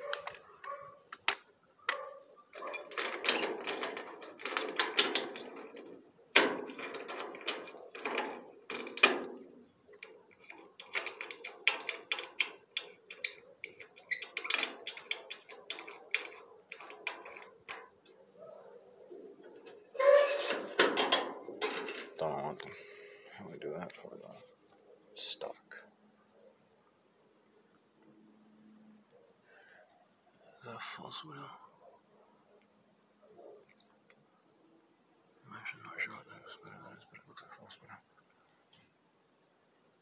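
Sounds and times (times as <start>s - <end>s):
keys and lock clicking rattling: 1.9s - 18.0s.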